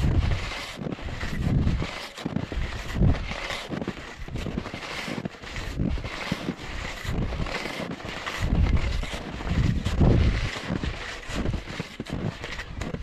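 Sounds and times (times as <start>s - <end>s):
wind buffeting microphone: 0.0s - 3.5s, 8.3s - 13.0s
skis striding through snow: 0.0s - 13.0s.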